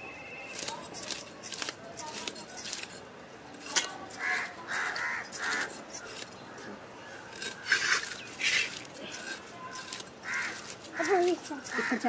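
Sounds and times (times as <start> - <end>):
knife scraping fish scales: 0.5 - 3.0, 7.2 - 12.0
crow cawing: 4.2 - 5.7, 10.2 - 12.0.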